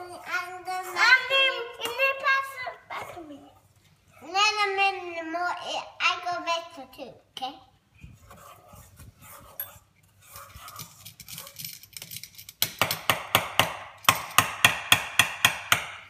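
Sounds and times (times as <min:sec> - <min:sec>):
utensil stirring batter in bowl: 0:08.0 - 0:11.9.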